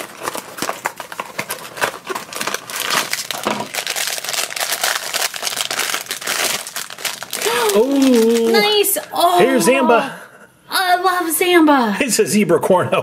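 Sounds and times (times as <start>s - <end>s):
cardboard box tearing: 0.0s - 6.6s
foil bag crinkling: 0.0s - 9.3s.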